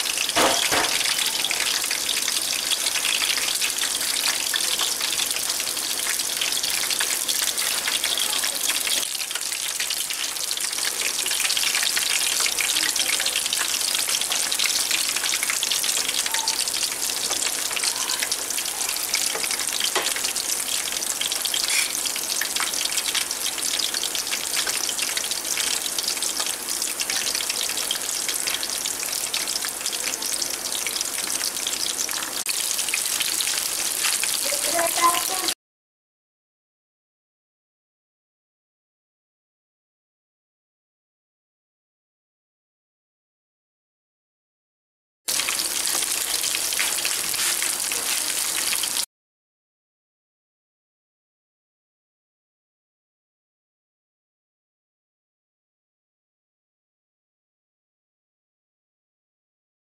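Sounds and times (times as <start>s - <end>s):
kebabs sizzling in hot oil: 0.0s - 35.6s, 45.3s - 49.1s.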